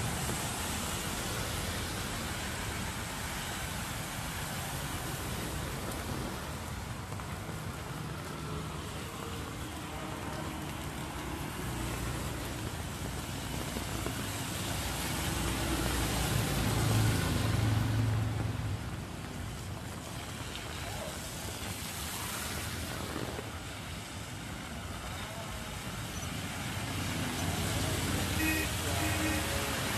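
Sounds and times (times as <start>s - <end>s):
rain: 0.0s - 29.9s
tyres hissing on wet road: 0.0s - 29.9s
scooter engines humming: 27.0s - 29.9s.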